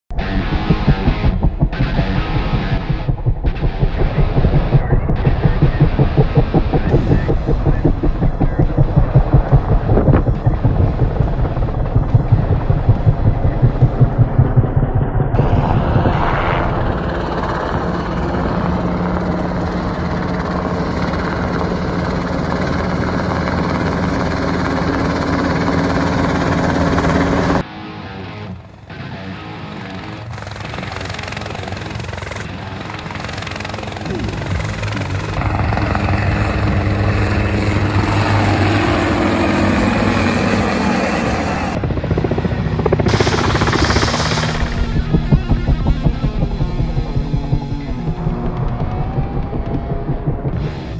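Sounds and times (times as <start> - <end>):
steady low hum: 0.1 - 21.4, 32.8 - 50.9
helicopter rotor and engine: 0.1 - 27.7, 28.5 - 50.9.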